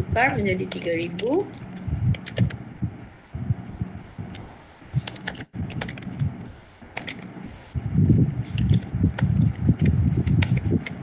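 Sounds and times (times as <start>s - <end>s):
computer keyboard key clicks: 0.7s - 2.6s, 5.0s - 6.3s, 6.9s - 7.3s, 8.5s - 11.0s.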